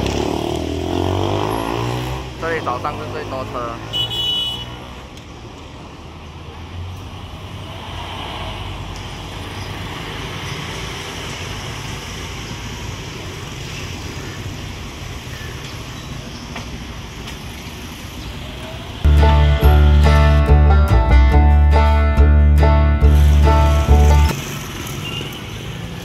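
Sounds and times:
bus and cars passing: 0.0 - 26.0
loud music: 19.1 - 24.3.

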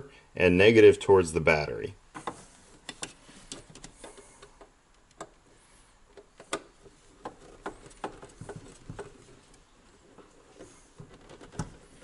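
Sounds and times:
cables clicking and knocking in metal box: 6.1 - 12.0.

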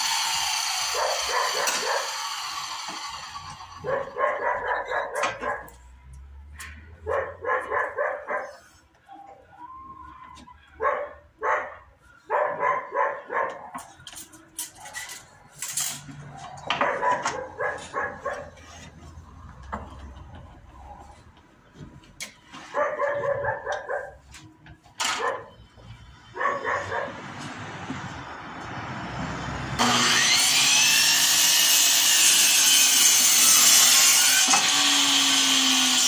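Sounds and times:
dog barking: 0.9 - 2.2, 3.8 - 5.8, 6.6 - 8.7, 10.7 - 13.9, 16.7 - 18.6, 22.7 - 24.2, 25.1 - 25.6, 26.3 - 27.2.

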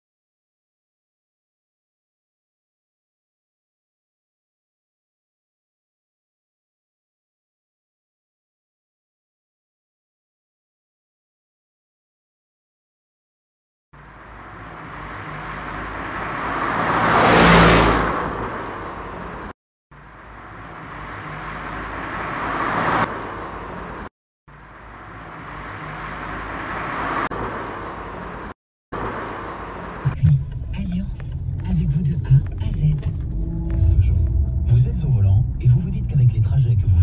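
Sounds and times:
car road and engine noise: 14.0 - 37.0.

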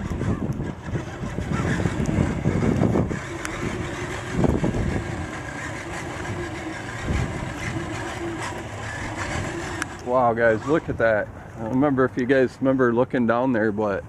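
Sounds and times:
electric motor whining: 0.0 - 11.8
low rumbling buffets: 0.0 - 14.0.

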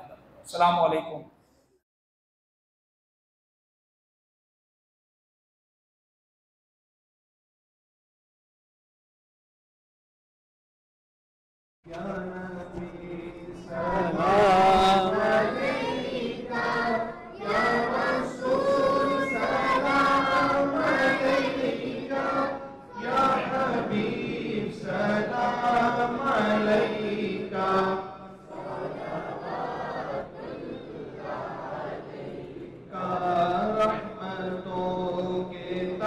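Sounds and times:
group of voices chanting: 13.8 - 34.0.

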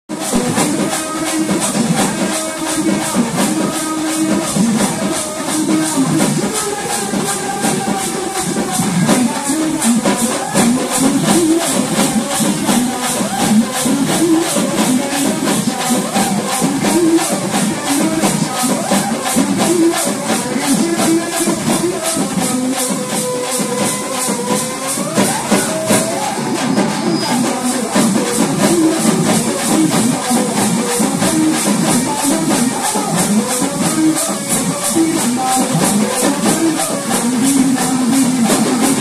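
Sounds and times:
crisp high percussion strikes: 0.1 - 39.0
drumming: 0.1 - 39.0.

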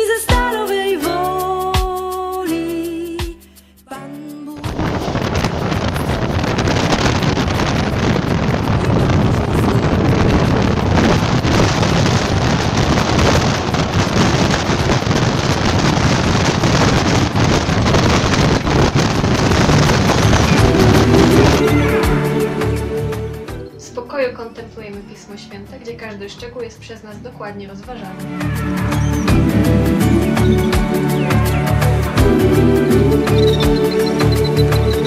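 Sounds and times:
wind buffeting microphone: 4.6 - 21.8.

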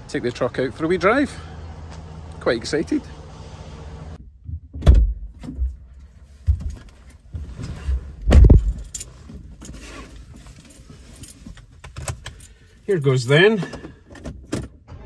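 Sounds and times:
seat and clothing rustling: 5.3 - 15.0
heavy thumps: 7.4 - 9.0
keys jangling: 8.7 - 13.2.

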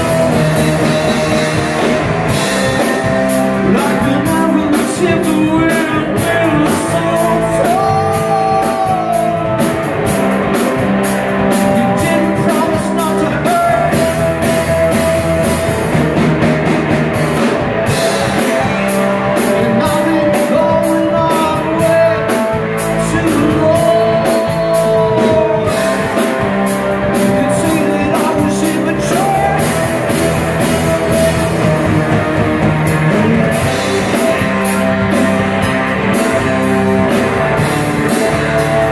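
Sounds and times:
lead vocal singing: 0.0 - 10.8, 11.4 - 14.4, 18.2 - 30.1
bass guitar: 0.0 - 38.9
drum kit steady beat: 0.0 - 38.9
electric guitars: 0.0 - 38.9.

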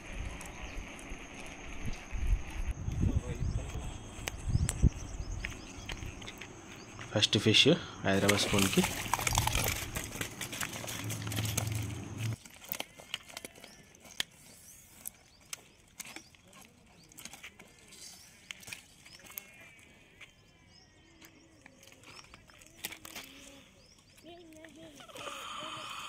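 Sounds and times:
fish thrashing and splashing: 8.2 - 19.8, 21.6 - 25.0
fish flopping on twigs and leaves: 8.2 - 20.3, 21.3 - 25.0.

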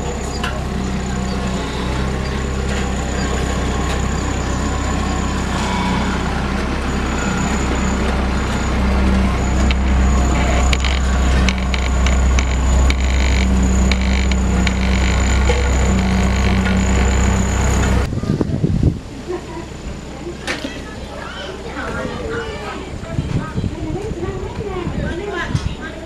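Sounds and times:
faint high whine: 0.0 - 18.1
road roller diesel engine: 0.0 - 18.1
knocks and rattles: 0.2 - 18.1.

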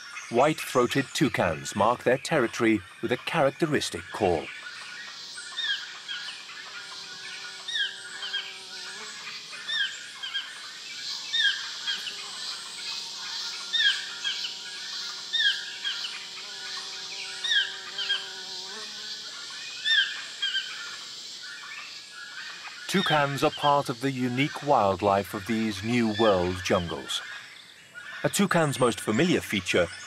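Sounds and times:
toucan yelping call: 4.4 - 6.8, 11.2 - 16.2, 19.8 - 23.9.

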